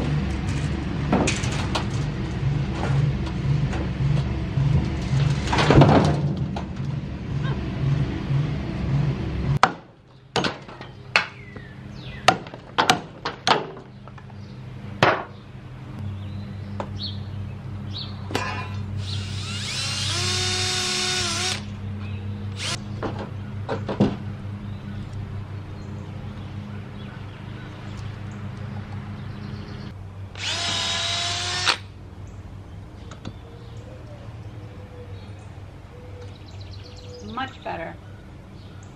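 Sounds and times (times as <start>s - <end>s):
low hum: 0.0s - 9.6s
cordless drill boring into log: 19.0s - 21.7s, 22.6s - 22.8s, 30.4s - 31.8s.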